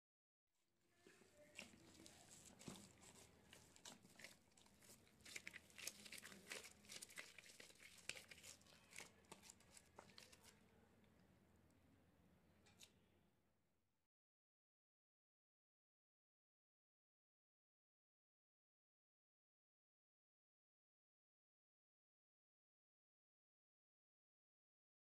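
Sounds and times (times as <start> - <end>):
dough squishing: 0.9 - 10.9
plastic gloves crinkling: 1.0 - 10.6.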